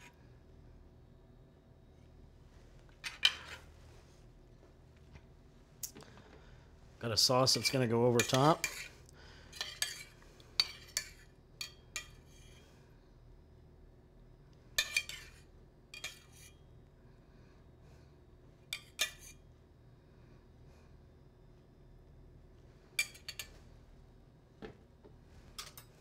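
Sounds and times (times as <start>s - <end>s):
metal spoon clinking on pan and plate: 7.6s - 8.9s, 9.6s - 12.2s, 14.8s - 15.3s.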